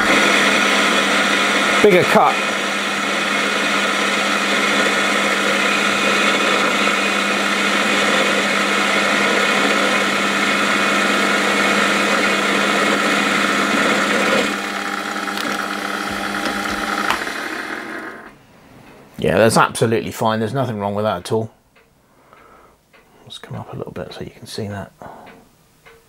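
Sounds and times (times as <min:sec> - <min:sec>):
metal lathe motor whine: 0:00.0 - 0:18.3.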